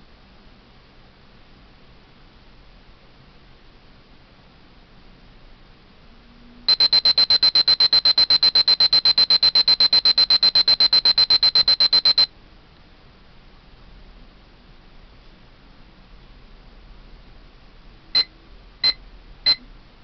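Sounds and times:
kitchen timer beeping: 0:06.7 - 0:12.3, 0:18.2 - 0:19.6.

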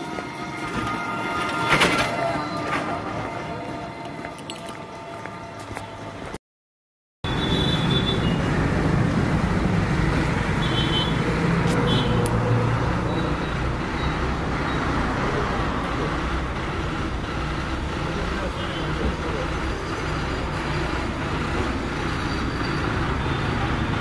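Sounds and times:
roadside traffic: 0:00.0 - 0:06.4, 0:07.2 - 0:24.0
bus diesel engine idling: 0:13.1 - 0:24.0.

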